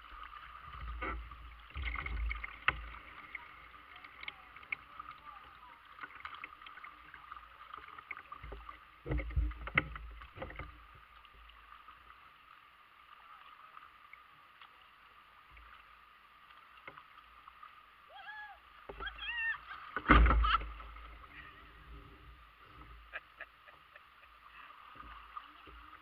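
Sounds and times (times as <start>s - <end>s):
water washing around kayak hull: 0.0s - 26.0s
paddle knocking against hull: 20.0s - 21.2s.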